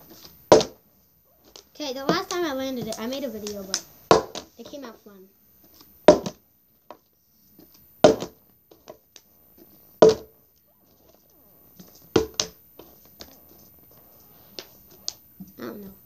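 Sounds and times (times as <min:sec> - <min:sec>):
plastic bottle thudding on floor: 0:00.5 - 0:00.8, 0:04.1 - 0:04.5, 0:06.1 - 0:06.4, 0:08.0 - 0:08.4, 0:10.0 - 0:10.3, 0:12.1 - 0:12.6.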